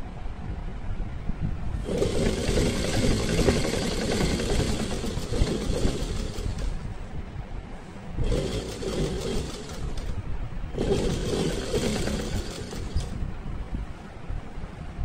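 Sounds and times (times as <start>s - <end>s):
sewing machine stitching: 1.8s - 7.0s, 8.2s - 13.3s.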